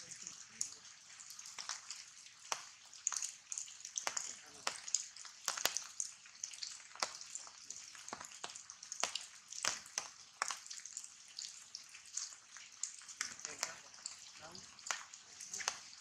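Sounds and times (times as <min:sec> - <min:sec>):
rain falling on foliage: 0:00.0 - 0:16.0
sharp water drips: 0:00.0 - 0:16.0.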